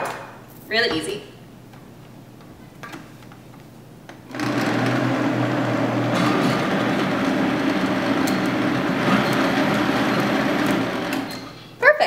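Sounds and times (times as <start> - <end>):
blender motor running: 4.3 - 11.6.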